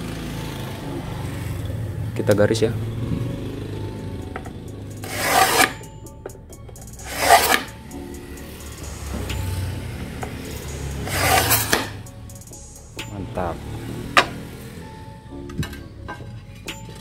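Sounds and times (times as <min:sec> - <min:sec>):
tile scorer scratching ceramic tile: 0:05.0 - 0:05.9, 0:07.0 - 0:07.8, 0:11.0 - 0:12.0.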